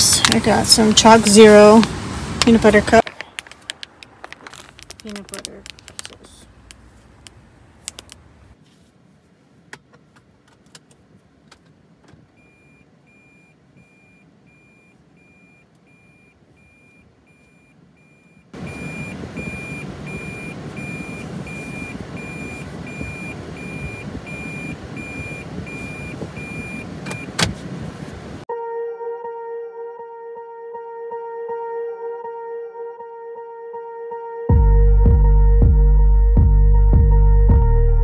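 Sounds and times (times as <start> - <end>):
high reverse warning beeps: 12.4 - 27.4.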